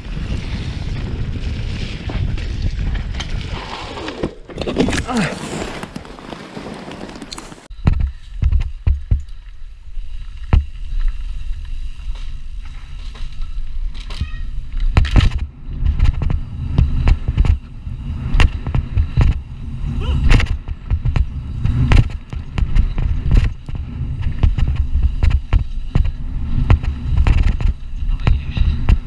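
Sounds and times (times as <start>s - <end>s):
tyres and wind rumbling: 0.0s - 29.0s
bike clattering over bumps: 10.4s - 29.0s.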